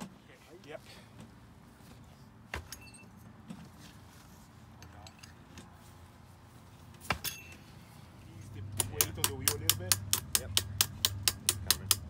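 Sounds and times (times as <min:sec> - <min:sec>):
hand tools clinking: 0:04.7 - 0:05.8, 0:07.1 - 0:08.0, 0:08.7 - 0:12.0.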